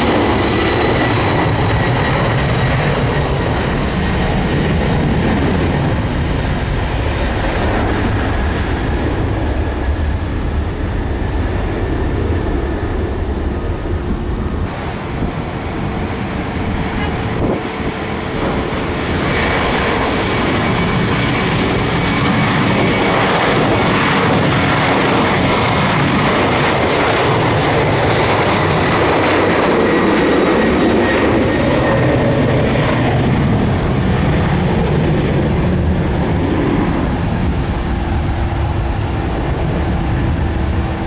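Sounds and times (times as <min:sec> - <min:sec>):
high whine: 0:00.0 - 0:41.0
jet engines roaring: 0:00.0 - 0:41.0.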